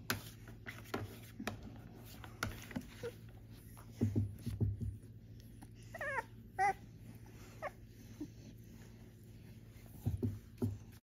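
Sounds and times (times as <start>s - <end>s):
puppies squeaking: 5.7s - 8.7s.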